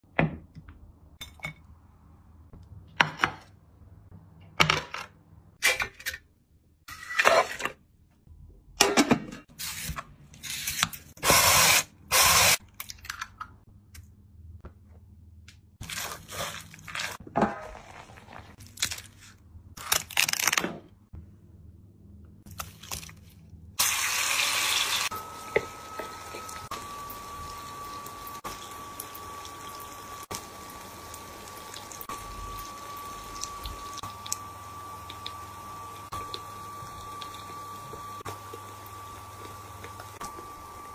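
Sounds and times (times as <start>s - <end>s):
food sizzling in oil: 23.8s - 40.9s.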